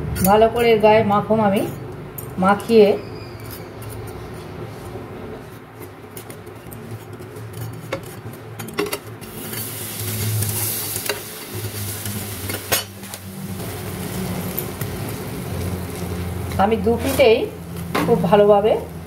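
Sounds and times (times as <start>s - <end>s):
spatula turning bread: 2.6s - 19.0s
butter sizzling in pan: 9.2s - 19.0s.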